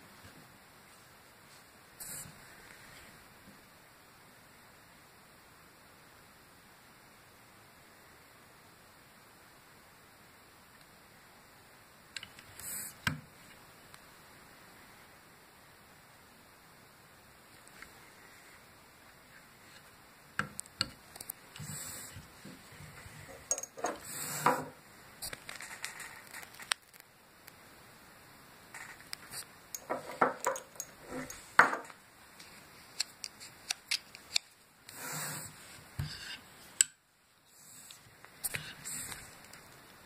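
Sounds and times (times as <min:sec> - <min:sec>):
clinks of metal and glass: 0:23.5 - 0:23.9.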